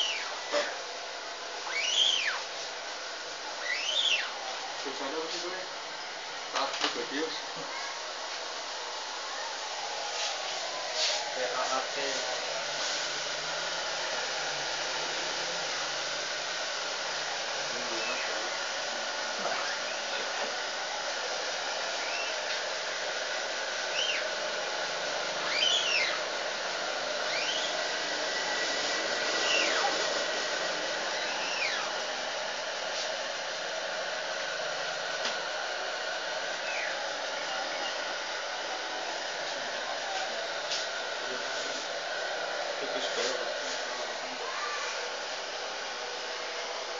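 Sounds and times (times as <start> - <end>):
hot-air dryer blowing: 0.0 - 46.9
high chirps: 1.7 - 2.4, 3.6 - 4.4, 25.5 - 26.2, 27.3 - 27.8.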